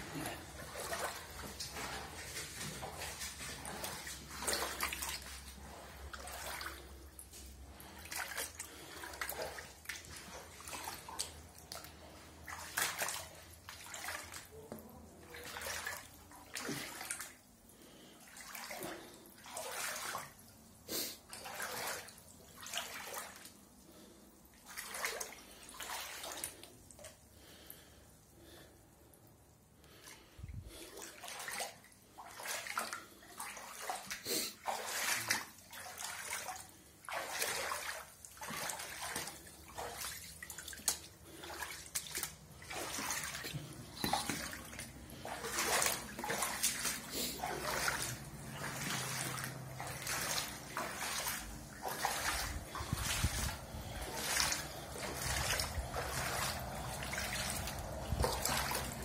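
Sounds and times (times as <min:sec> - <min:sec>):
water splashing on floor: 0:00.0 - 0:59.0
low steady hum: 0:38.3 - 0:59.0.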